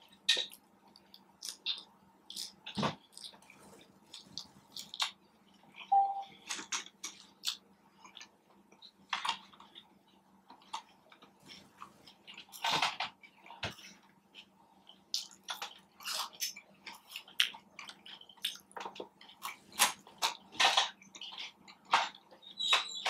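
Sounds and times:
wet chewing and lip smacks: 0.3 - 6.0, 14.2 - 21.9.

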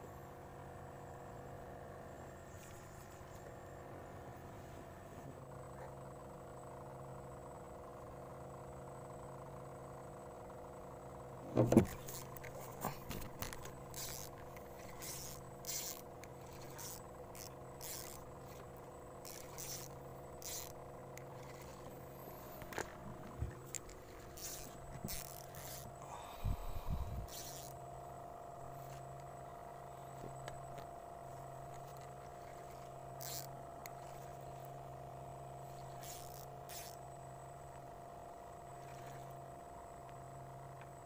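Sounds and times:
steady motor hum: 0.0 - 41.0
fishing reel clicks and scrapes: 11.8 - 22.8, 23.6 - 26.0, 26.6 - 27.8, 31.8 - 34.7, 35.7 - 37.0.

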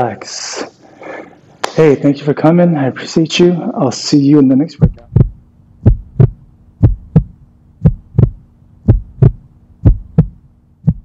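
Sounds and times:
faint steady hum: 0.0 - 11.0
heartbeat thumps: 4.8 - 11.0.

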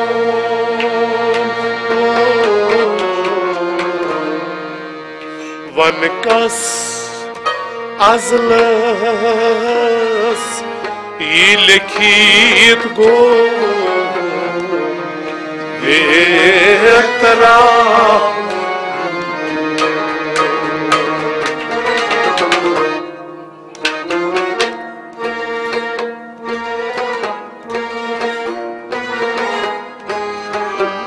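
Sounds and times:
string instruments drone: 0.0 - 31.0
man singing ornamented phrases: 5.6 - 7.4, 8.0 - 10.6, 11.2 - 14.9, 15.8 - 18.5
hand drum strokes: 19.8 - 22.9.

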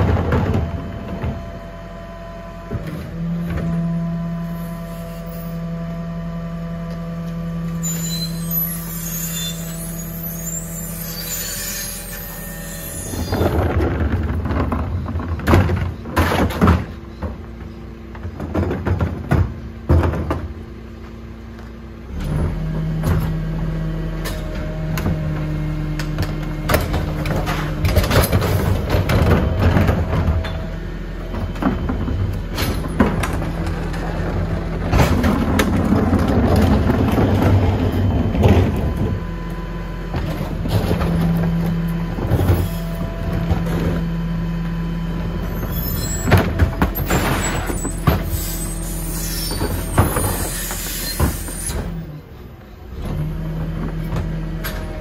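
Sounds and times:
bins banging and clattering: 0.0 - 1.6, 11.8 - 20.8, 24.2 - 39.4, 40.0 - 52.1
garbage truck engine droning: 0.0 - 55.0.

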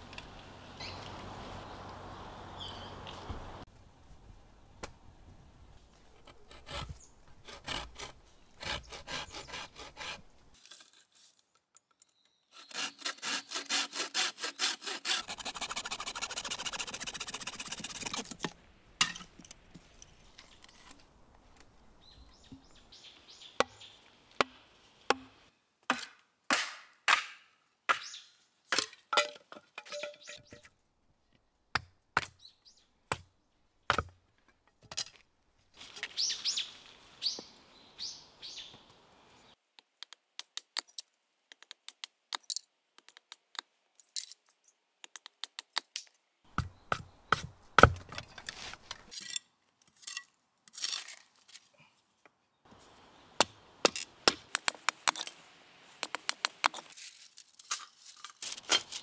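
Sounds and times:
saw cutting bamboo: 6.2 - 10.3, 12.5 - 18.5
cleaver splitting bamboo: 12.5 - 19.2, 46.6 - 49.4, 53.4 - 55.4
quick scraping strokes: 12.6 - 18.4.

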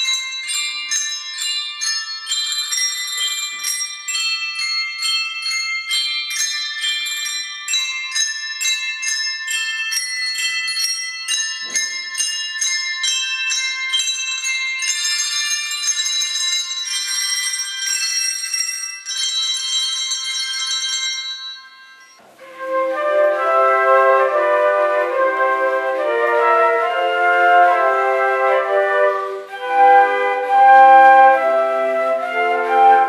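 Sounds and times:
handbells ringing a tune: 0.0 - 22.7.

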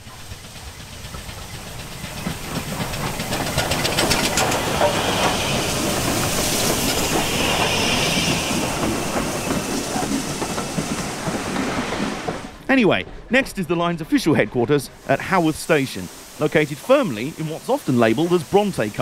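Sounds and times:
steam hissing: 0.0 - 12.6, 13.3 - 19.0
train wheels clicking over rail joints: 0.0 - 14.5
steam locomotive exhaust beats: 0.0 - 19.0.

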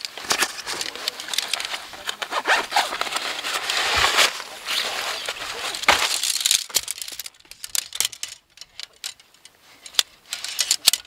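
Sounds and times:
fabric and plastic bag rustling: 0.0 - 7.6.

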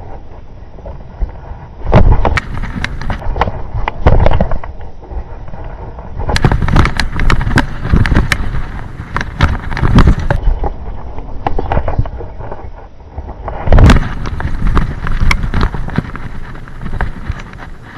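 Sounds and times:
bike tyres rolling on gravel: 0.0 - 17.9
bike thumping over bumps: 1.8 - 4.6, 6.3 - 10.4, 13.6 - 17.9.

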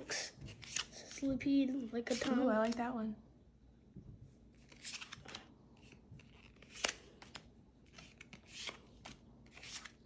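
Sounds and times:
cards snapping and rustling: 0.5 - 1.2, 4.6 - 10.0.

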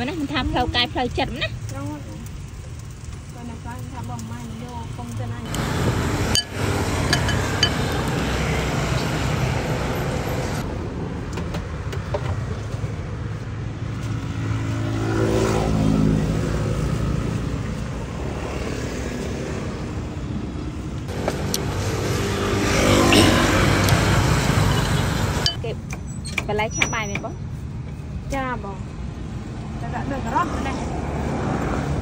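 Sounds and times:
traffic rumble: 0.0 - 32.0
vehicle engine passing: 5.3 - 10.7, 13.5 - 25.6.

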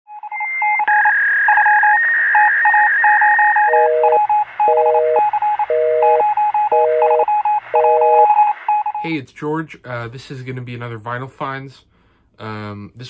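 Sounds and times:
phone busy signal: 0.1 - 9.1
steady high phone tone: 0.1 - 9.1.

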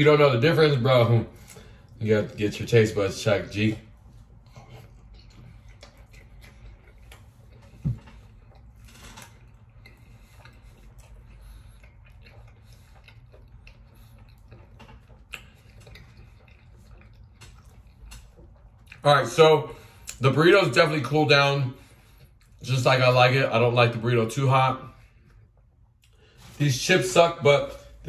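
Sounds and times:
man chewing food: 0.1 - 28.0
wet mouth clicks: 9.4 - 19.0.

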